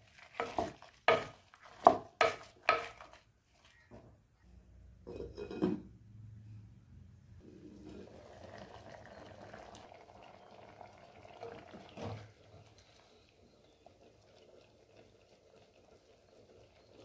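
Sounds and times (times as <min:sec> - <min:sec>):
ladle scraping a pot: 0:05.1 - 0:05.8
curry bubbling in a pot: 0:07.4 - 0:17.0.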